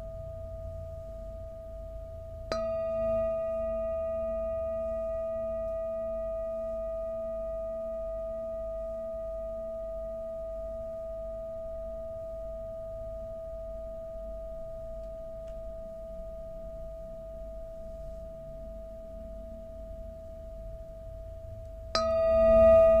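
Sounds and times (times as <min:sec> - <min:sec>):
metal singing bowl ringing: 0:00.0 - 0:23.0
wooden mallet striking bowl: 0:22.0 - 0:23.0.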